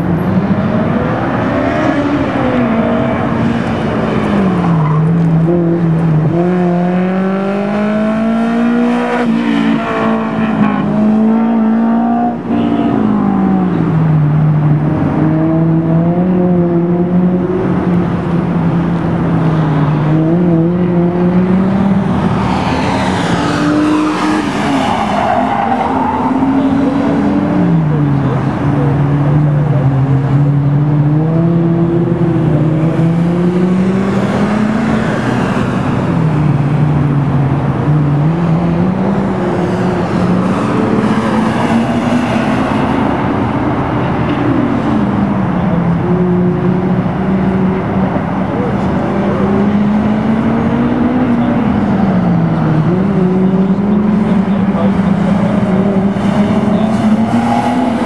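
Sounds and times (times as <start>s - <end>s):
car engine accelerating: 13.1s - 58.0s
tires squealing: 21.4s - 28.0s, 53.4s - 58.0s.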